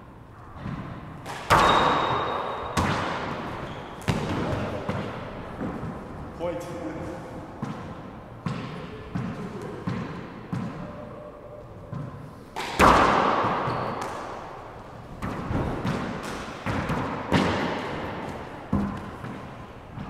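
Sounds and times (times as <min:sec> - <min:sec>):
ball slapping into wall echoing: 0:00.6 - 0:06.2, 0:07.6 - 0:11.0, 0:11.9 - 0:20.0
ball bouncing on wooden floor: 0:18.7 - 0:19.4.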